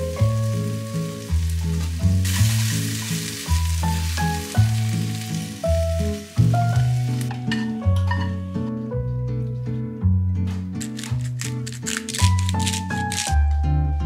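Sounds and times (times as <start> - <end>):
food sizzling in a pan: 0.0 - 7.7.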